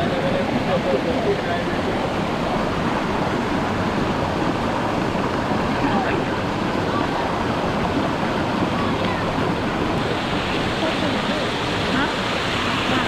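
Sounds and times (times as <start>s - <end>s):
waterfall and river rushing: 0.0s - 13.0s.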